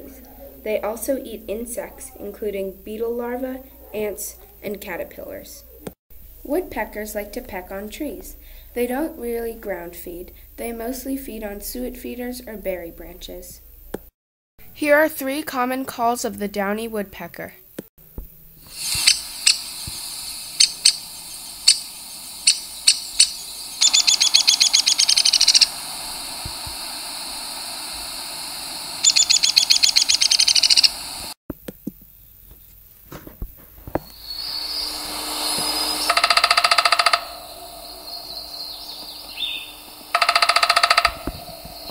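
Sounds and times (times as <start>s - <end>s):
scattered clicks: 18.9s - 19.6s, 20.6s - 21.0s, 21.6s - 21.8s, 22.4s - 25.7s, 29.0s - 30.9s, 40.2s - 41.9s
woodpecker pik calls: 18.9s - 19.6s, 20.6s - 26.5s, 29.0s - 31.1s, 34.1s - 41.9s
woodpecker whinny call: 20.6s - 25.7s, 29.0s - 31.0s, 34.1s - 41.9s.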